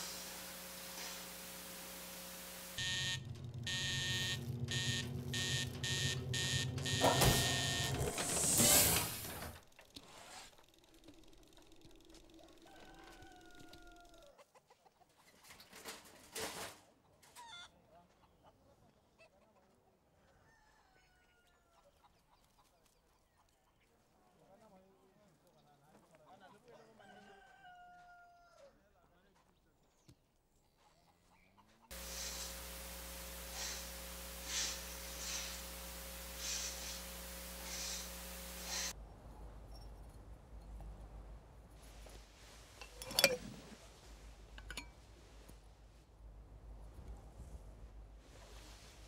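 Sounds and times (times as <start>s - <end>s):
airy puffs of hiss: 0.0s - 2.8s, 31.9s - 39.0s
constant hiss: 0.0s - 6.2s, 31.9s - 40.2s
low steady hum: 0.0s - 7.7s, 31.9s - 41.7s
rooster crowing: 12.4s - 14.4s, 20.2s - 21.7s, 27.0s - 28.8s.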